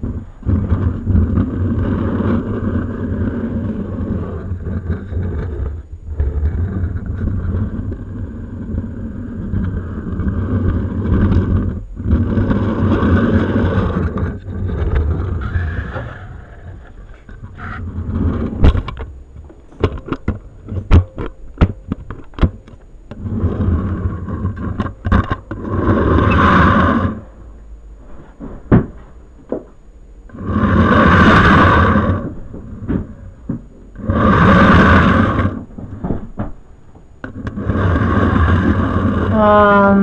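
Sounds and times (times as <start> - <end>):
scraping and rubbing noise: 0.0 - 40.0
sharp clicks and knocks: 18.4 - 23.2.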